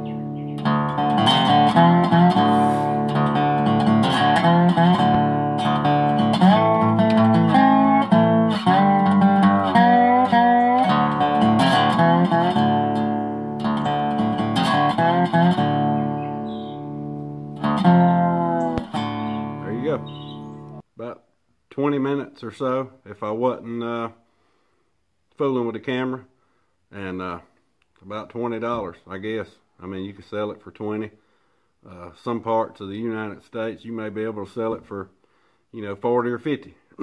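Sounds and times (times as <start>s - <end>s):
acoustic guitar: 0.0s - 20.8s.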